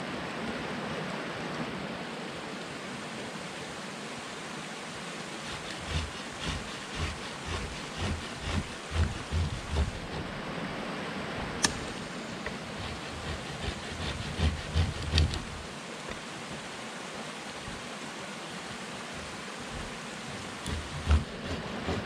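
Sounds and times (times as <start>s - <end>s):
steady background hiss: 0.0s - 22.0s
chopping blows on wooden stakes: 5.4s - 10.3s, 11.6s - 16.2s, 19.2s - 22.0s.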